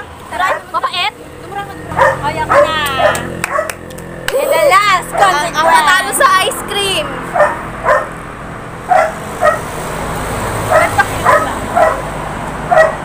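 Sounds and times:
dog barking: 2.0s - 3.8s, 7.3s - 8.2s, 8.9s - 9.7s, 10.7s - 12.1s, 12.7s - 13.0s.

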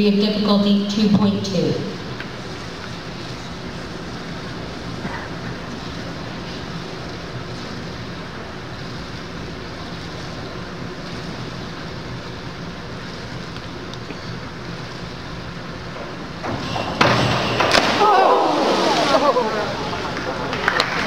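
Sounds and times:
indoor pool hall hum and hiss: 0.0s - 21.0s
diving springboard bang: 16.4s - 21.0s.

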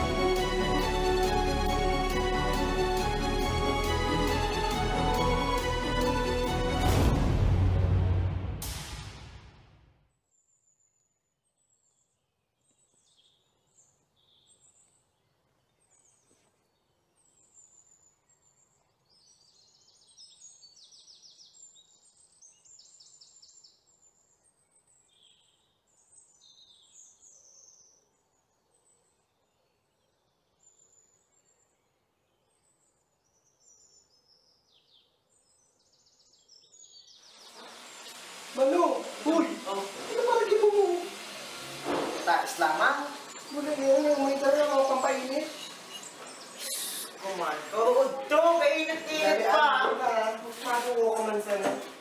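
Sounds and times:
faint bird chirps and trills: 10.3s - 38.5s, 43.1s - 48.4s.

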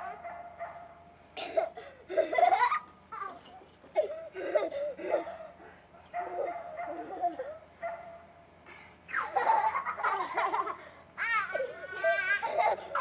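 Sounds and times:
children giggling and squealing: 1.6s - 5.6s, 6.8s - 7.7s, 9.0s - 13.0s.

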